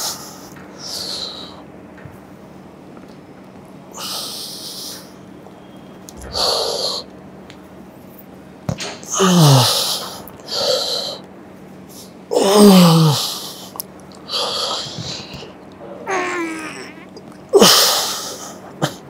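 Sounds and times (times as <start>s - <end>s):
man grunting: 16.1s - 17.2s.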